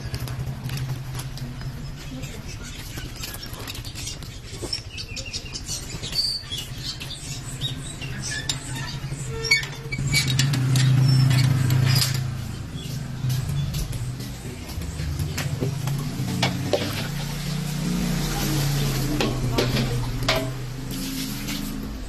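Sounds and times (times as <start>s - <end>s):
small motorcycle engine running: 0.0s - 22.0s
clicks and rattles: 8.2s - 12.6s.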